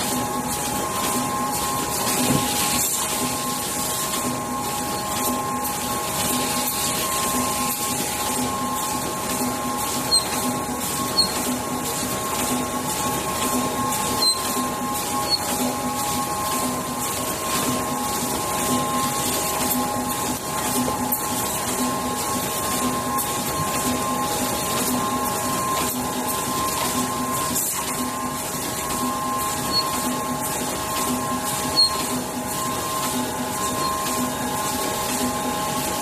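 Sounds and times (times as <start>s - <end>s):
printing machine humming: 0.0s - 36.0s.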